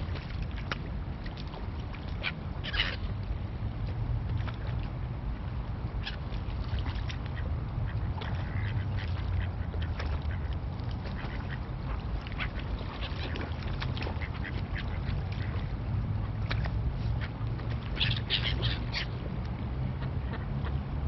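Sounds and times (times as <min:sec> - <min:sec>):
ducks quacking: 0:07.3 - 0:15.7
gulls calling: 0:17.0 - 0:20.9.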